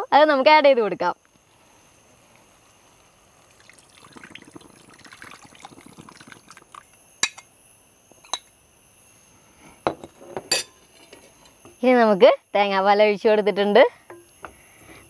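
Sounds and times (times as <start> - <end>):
metal clinks on a pan: 10.5 - 10.8.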